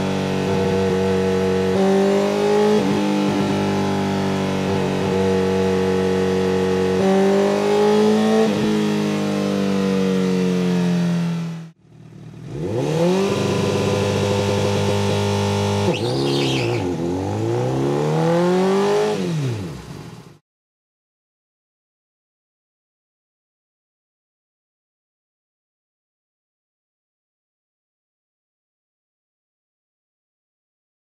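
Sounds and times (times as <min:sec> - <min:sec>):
motorcycle engine revving on dyno: 0:00.1 - 0:11.4, 0:12.3 - 0:19.9.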